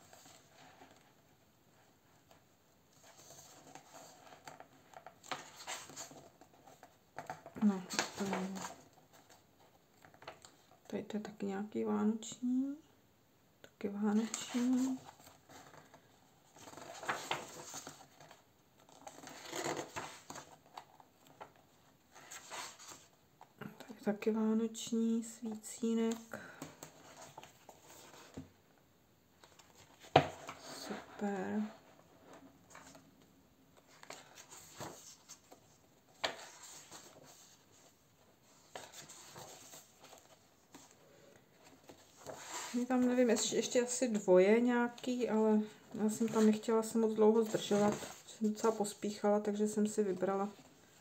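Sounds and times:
paper page rustling: 3.0s - 9.4s, 14.2s - 23.2s, 33.8s - 43.7s, 47.4s - 49.0s.

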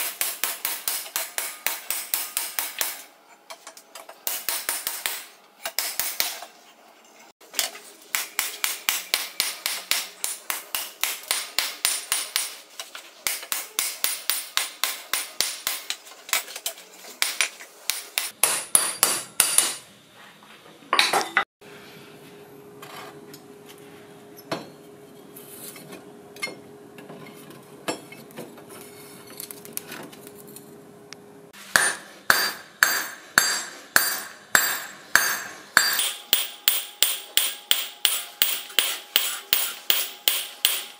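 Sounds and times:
hammer striking steel: 0.0s - 3.1s, 4.2s - 6.4s, 8.1s - 12.6s, 13.3s - 16.4s, 17.2s - 19.8s, 31.6s - 40.9s.

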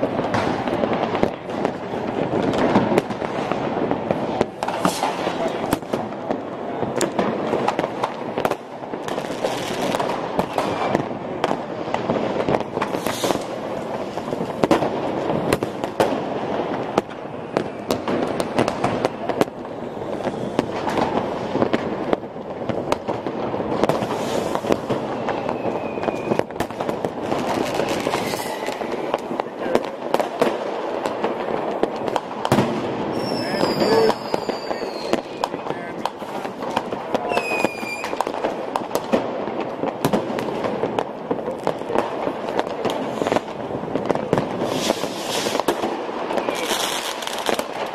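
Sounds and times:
fireworks crackling and banging: 0.0s - 47.9s
rocket whistles: 25.2s - 26.5s, 28.1s - 28.8s, 33.1s - 35.4s, 37.3s - 38.2s.

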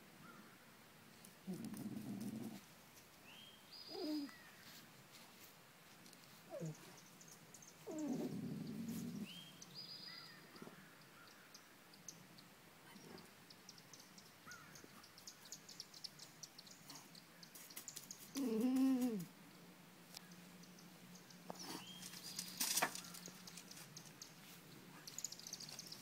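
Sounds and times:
dogs whining: 3.9s - 4.4s, 6.5s - 6.9s, 7.8s - 9.3s
rustling in grass: 4.0s - 7.2s.

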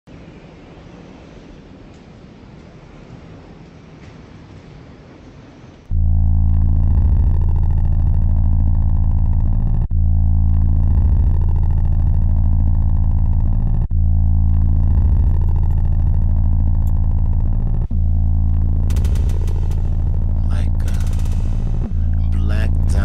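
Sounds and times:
distorted bass synth loop: 5.9s - 23.0s.

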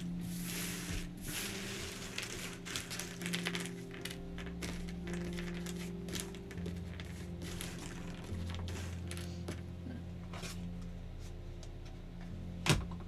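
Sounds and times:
soft ambient synth music: 0.0s - 13.0s
puzzle pieces clicking and rattling: 2.0s - 9.2s.

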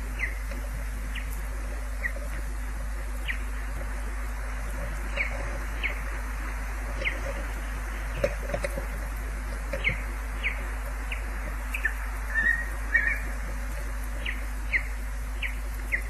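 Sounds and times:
osprey whistled calls: 0.0s - 0.4s, 9.8s - 13.3s, 14.2s - 16.0s
steady hiss: 0.0s - 16.0s.

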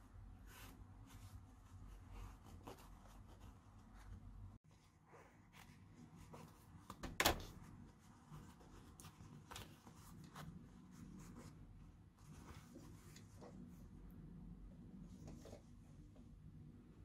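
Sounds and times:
fabric rustling: 7.6s - 14.0s.

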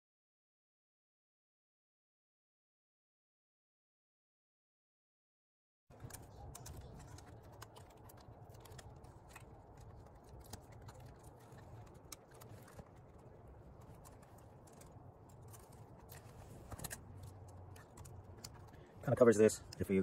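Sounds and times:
rubber bands clicking and rustling: 5.9s - 20.0s.

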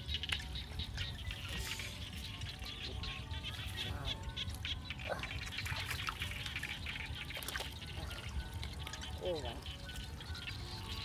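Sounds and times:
small splashes in muddy water: 5.3s - 9.2s.

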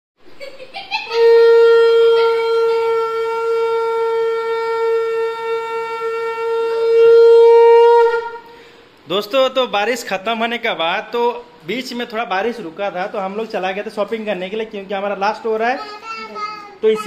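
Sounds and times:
conch shell blown: 1.1s - 8.6s.

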